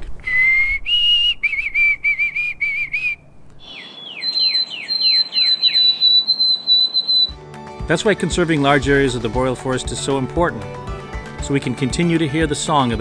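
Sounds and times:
sparrow whistled song: 0.3 - 7.4, 12.6 - 13.0
whistled birdsong: 0.3 - 7.4, 12.6 - 13.0.

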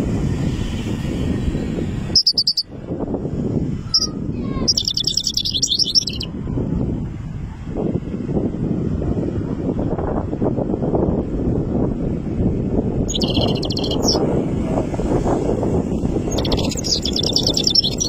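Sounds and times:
goldfinch twittering song: 2.2 - 2.7, 3.9 - 6.3, 13.1 - 14.3, 16.2 - 18.0.

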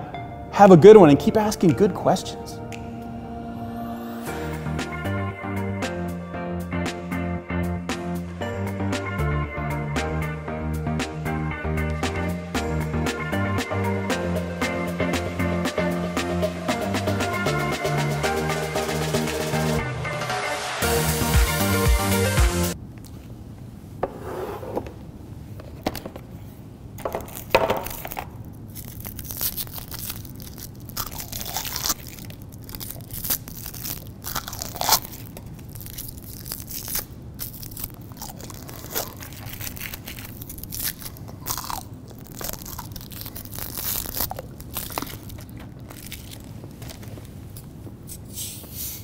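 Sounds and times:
crunching and chewing candy: 27.0 - 47.2
candy wrappers crackling: 27.0 - 47.4.

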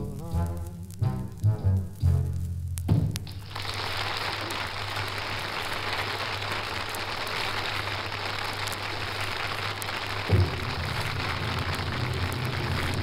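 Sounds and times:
record hiss and crackle: 0.0 - 13.0
audience applauding: 3.3 - 13.0.

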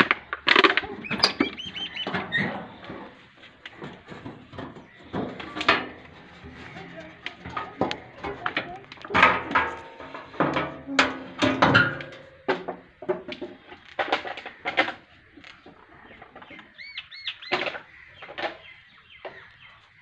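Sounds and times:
birds chirping: 0.3 - 10.4, 12.7 - 20.0
birds calling sharply: 0.9 - 2.9, 13.7 - 20.0.

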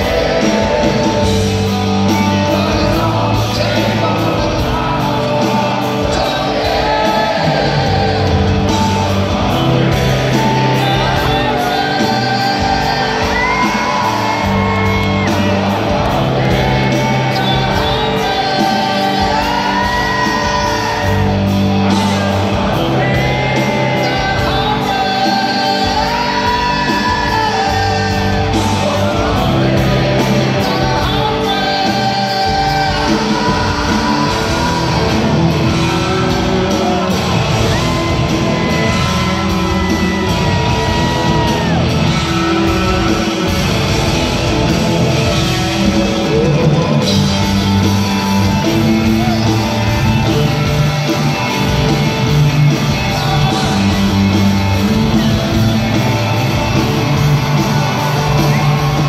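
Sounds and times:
live rock band: 0.0 - 59.0.

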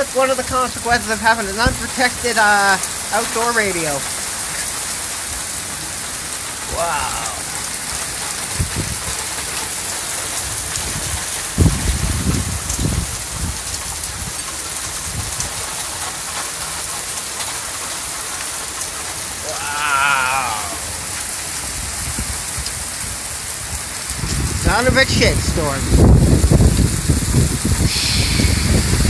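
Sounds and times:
heavy rain pouring: 0.0 - 29.0
wind buffeting microphone: 8.4 - 9.3, 10.4 - 14.4, 23.6 - 29.0.

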